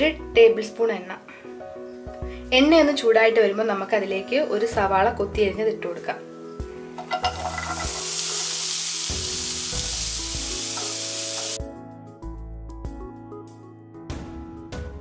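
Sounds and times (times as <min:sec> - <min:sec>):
onion sizzling in hot oil: 0:06.9 - 0:11.6.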